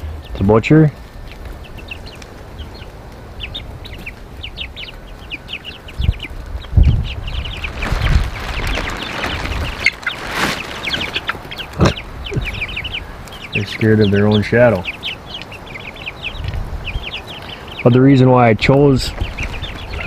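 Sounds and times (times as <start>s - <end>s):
chicks chirping and peeping: 0.0s - 20.0s
low thuds: 6.0s - 9.8s
rustling: 7.2s - 12.0s.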